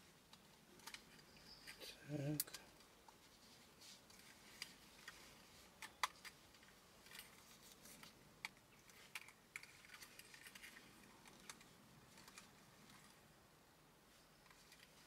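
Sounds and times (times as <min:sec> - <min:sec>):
small plastic parts clicking: 0:00.3 - 0:01.4, 0:05.8 - 0:13.2.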